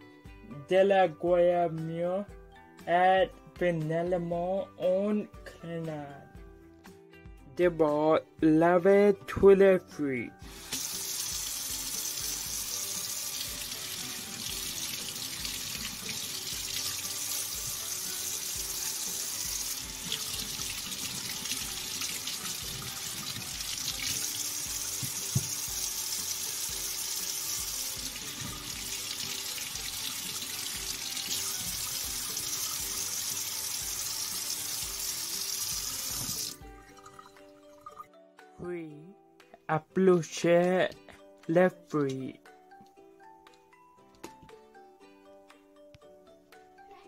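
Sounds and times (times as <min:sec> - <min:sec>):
faucet running into a steel sink: 0:10.5 - 0:37.2.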